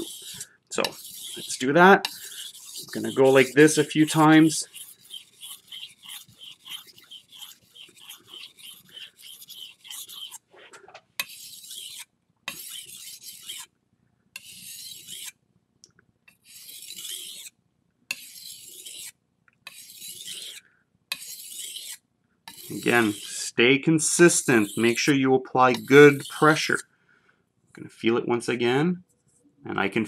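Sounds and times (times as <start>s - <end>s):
knife scraping on whetstone: 0.0s - 10.4s, 11.2s - 13.7s, 14.4s - 15.3s, 16.3s - 17.5s, 18.1s - 19.1s, 19.7s - 26.8s.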